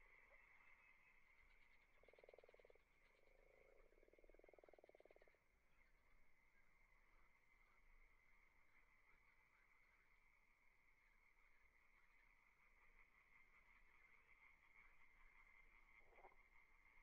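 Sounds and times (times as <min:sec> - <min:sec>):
faint steady high tone: 0:00.0 - 0:17.0
frog croaking trills: 0:01.7 - 0:05.5.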